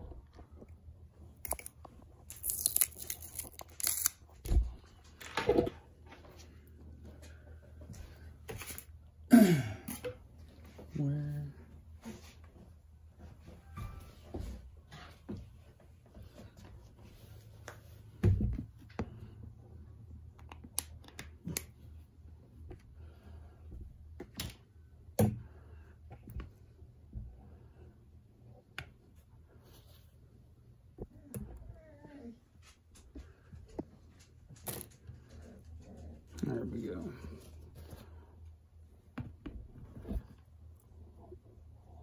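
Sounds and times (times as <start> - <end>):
tape tearing: 1.4 - 4.4.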